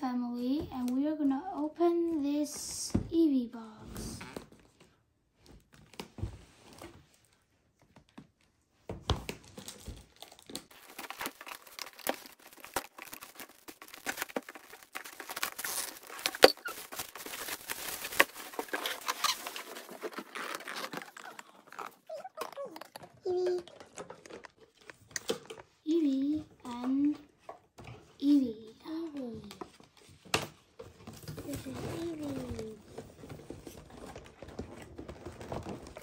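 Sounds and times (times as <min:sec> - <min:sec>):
packaging tearing and crinkling: 0:09.4 - 0:23.2.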